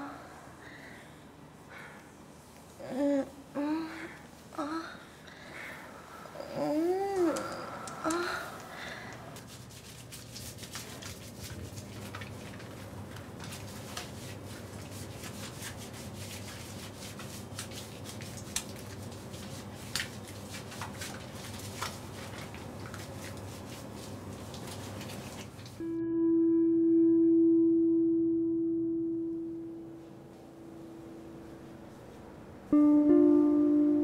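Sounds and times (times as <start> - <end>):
low steady hum: 0.0 - 34.0
hands rubbing soap lather: 7.2 - 25.8.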